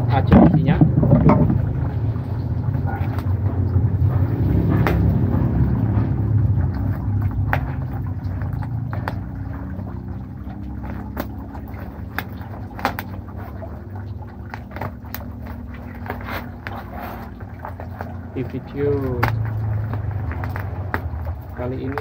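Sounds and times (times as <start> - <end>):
low rumble: 0.0 - 11.7.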